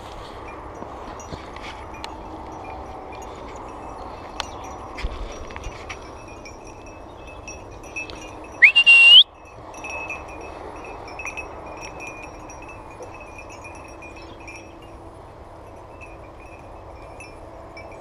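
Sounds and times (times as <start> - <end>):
small bells tinkling: 0.0 - 18.0
rising whistle: 8.6 - 9.3.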